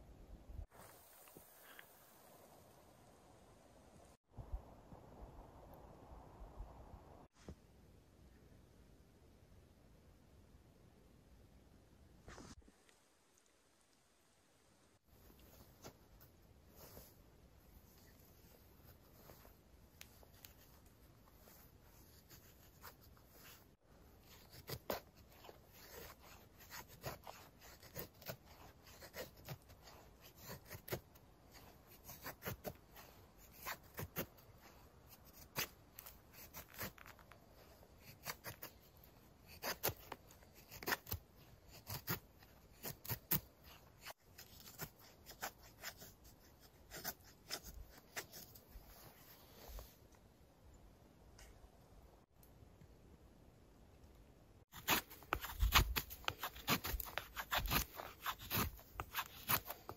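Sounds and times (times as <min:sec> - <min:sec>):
knife scraping wood: 0:24.2 - 0:32.8, 0:38.0 - 0:48.7, 0:54.7 - 0:59.9.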